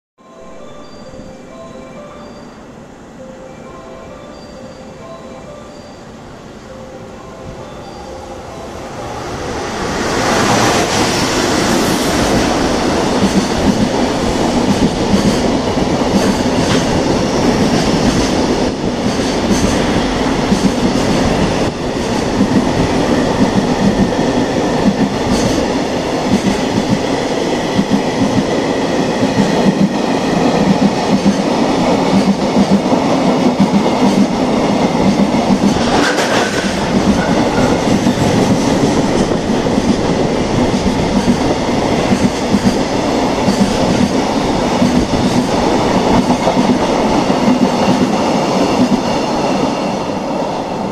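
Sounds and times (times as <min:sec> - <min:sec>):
electric locomotive passing: 0:00.2 - 0:50.9
train wheels clacking over joints: 0:14.6 - 0:22.8, 0:33.6 - 0:40.0.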